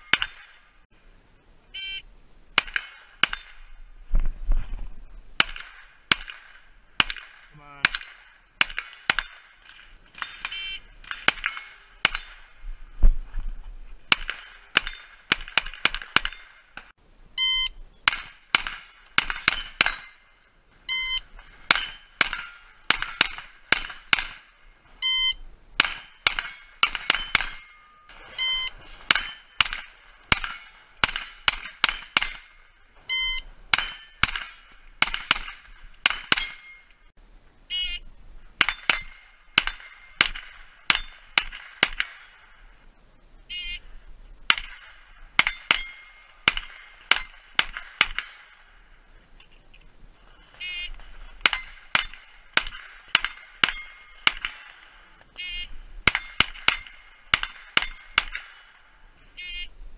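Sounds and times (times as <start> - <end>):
steel plates ringing: 0.0 - 0.8, 14.2 - 16.7, 18.1 - 37.1, 38.6 - 42.4, 44.5 - 48.8, 51.4 - 54.7, 56.1 - 58.9
carbine gunshots: 2.6 - 3.7, 5.4 - 12.6, 14.1 - 16.9, 18.0 - 24.7, 25.8 - 36.9, 38.6 - 42.6, 44.5 - 48.9, 50.4 - 59.0
shot timer beep: 17.4 - 17.8, 20.9 - 21.3, 25.0 - 25.4, 28.4 - 28.8, 33.1 - 33.5.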